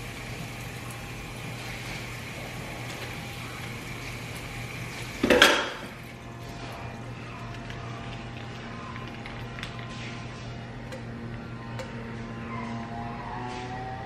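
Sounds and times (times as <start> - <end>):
low electrical hum: 0.0 - 14.0
tap running into steel sink: 5.2 - 5.9.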